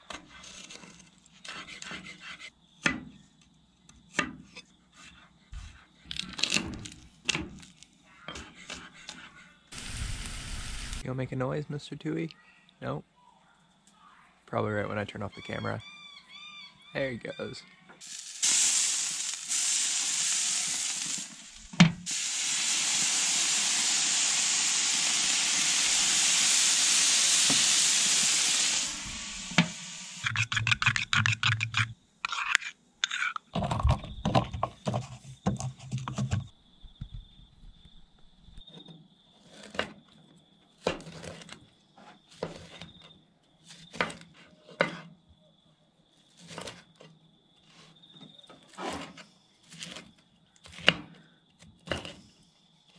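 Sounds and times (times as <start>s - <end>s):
broccoli sizzling on grill: 9.7s - 11.0s, 18.0s - 30.4s
mortar and pestle grinding: 30.2s - 34.2s.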